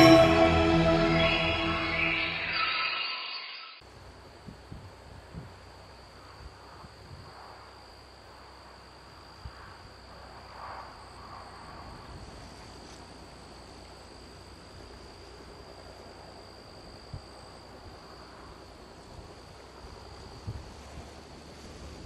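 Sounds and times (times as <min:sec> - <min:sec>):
insects droning: 0:05.6 - 0:22.0.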